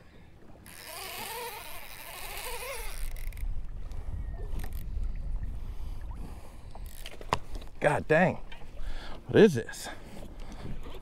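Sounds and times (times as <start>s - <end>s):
fishing reel drag buzzing: 0.6s - 3.5s
wind rumble on microphone: 2.8s - 7.8s.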